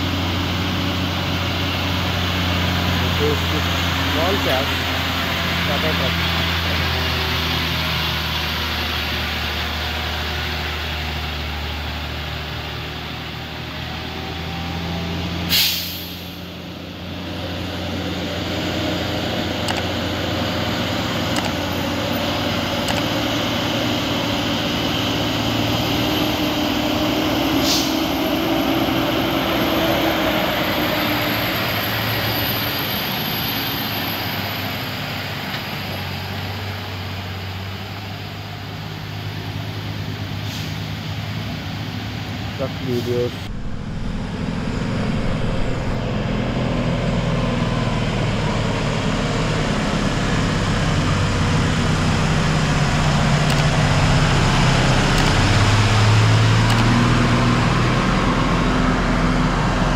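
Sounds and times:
diesel truck engine running: 0.0 - 59.9
air brake hiss: 15.5 - 16.4, 27.6 - 28.1, 40.4 - 41.0.

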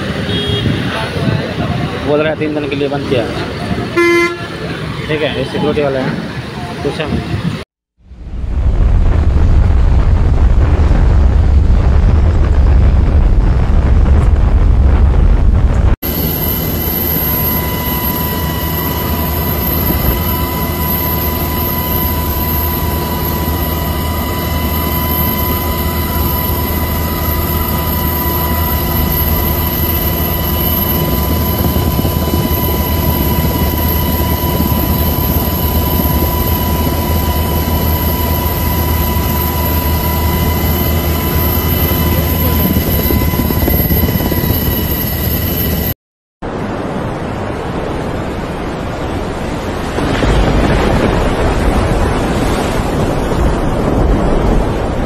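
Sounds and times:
helicopter rotor and engine noise: 0.0 - 7.6, 14.1 - 46.0
high steady whine: 0.0 - 55.0.

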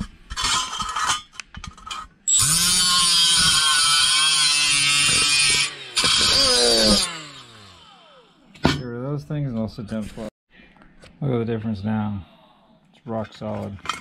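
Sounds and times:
metal parts clattering: 0.0 - 2.1, 13.8 - 14.0
drill sanding disc grinding steel: 2.3 - 8.4.

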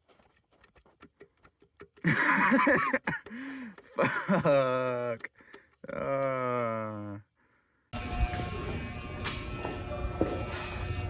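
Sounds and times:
man's loud laugh-like outburst: 2.0 - 3.3, 3.9 - 4.9.

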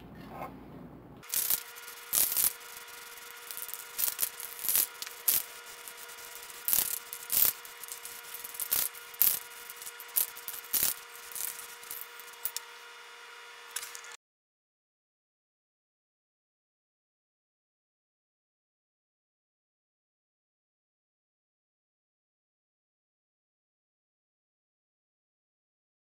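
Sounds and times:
spray paint can hissing: 1.2 - 12.8, 13.7 - 14.2.

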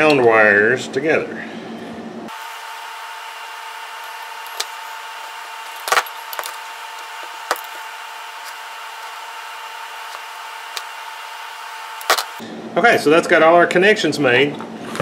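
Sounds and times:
steady hum: 0.0 - 13.6
wire connectors clicking and tapping: 3.9 - 4.8, 5.6 - 9.2, 12.0 - 12.4.

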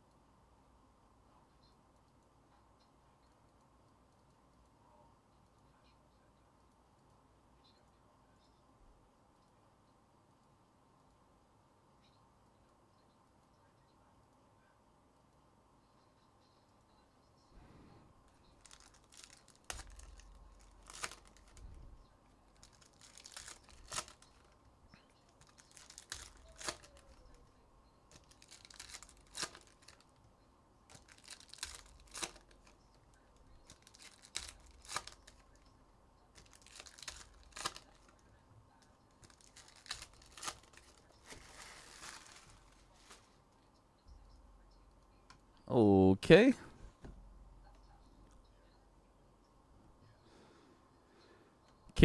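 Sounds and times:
wrappers tearing and crinkling: 18.6 - 21.7, 22.5 - 24.6, 25.3 - 27.4, 28.1 - 30.1, 30.9 - 32.8, 33.7 - 35.6, 36.4 - 38.2, 39.2 - 43.4.

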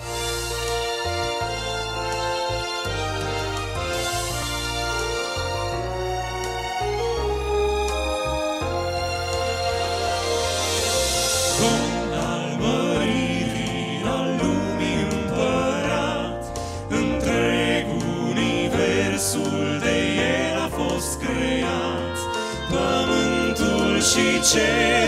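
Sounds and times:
male vocal quartet singing: 11.4 - 25.0.

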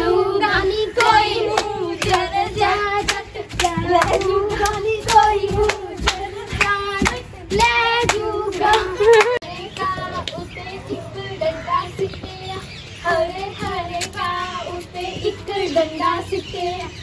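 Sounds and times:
girls singing: 0.0 - 17.0
hand claps: 1.0 - 2.3, 3.0 - 10.5.

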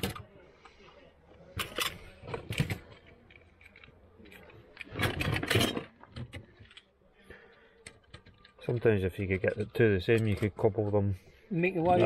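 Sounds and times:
toy cars clattering: 1.5 - 11.1.

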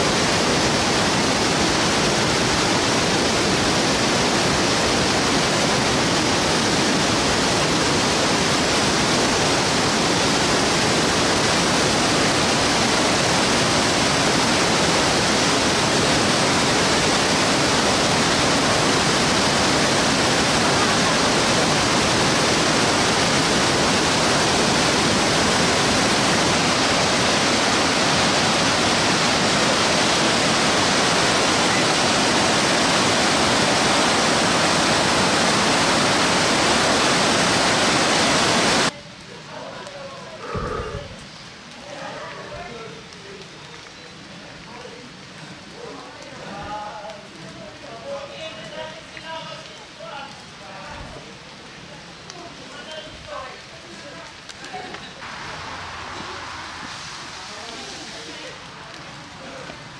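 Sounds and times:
waterfall rushing water: 0.0 - 39.2, 52.5 - 59.9.

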